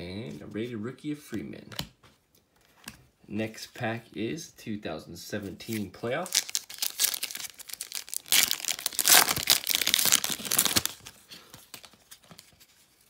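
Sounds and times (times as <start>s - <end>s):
wrapper tearing and crinkling: 5.7s - 12.6s.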